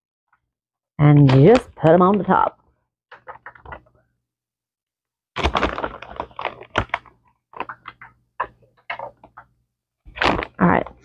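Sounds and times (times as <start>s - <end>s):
plastic bag rustling: 5.4s - 8.0s, 10.0s - 10.9s.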